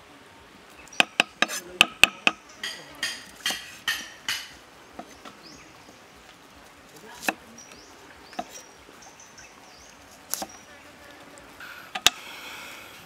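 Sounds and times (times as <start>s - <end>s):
faint birds chirping: 0.0s - 13.0s
knife chopping on wooden block: 1.0s - 5.2s, 7.2s - 7.4s, 8.4s - 8.6s, 10.3s - 10.5s
sharp knocks: 1.0s - 5.4s.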